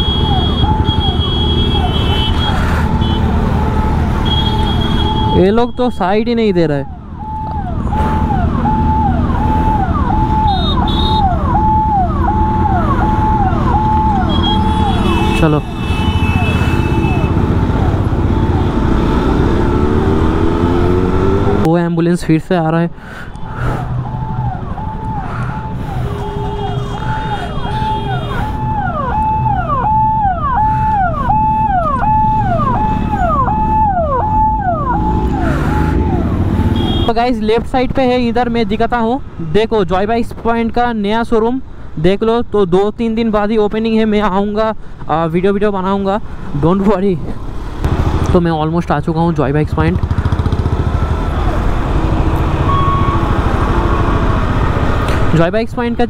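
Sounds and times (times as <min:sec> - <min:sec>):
ambulance siren wailing: 0:00.0 - 0:21.7, 0:23.4 - 0:37.2, 0:50.7 - 0:54.9
idling traffic rumble: 0:00.0 - 0:56.0.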